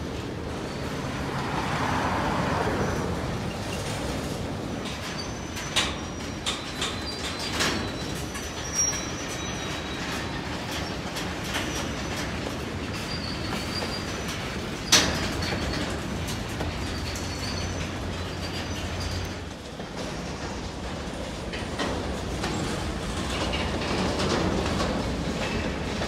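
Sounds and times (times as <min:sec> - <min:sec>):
train wheels rumbling on rail: 0:00.0 - 0:26.0
high wheel squeal: 0:00.5 - 0:04.0, 0:05.0 - 0:11.0, 0:11.7 - 0:16.0, 0:16.6 - 0:19.5.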